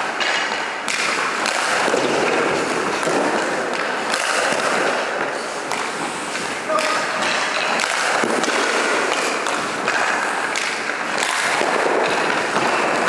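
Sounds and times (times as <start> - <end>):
skate blades scraping on ice: 0.1 - 13.0.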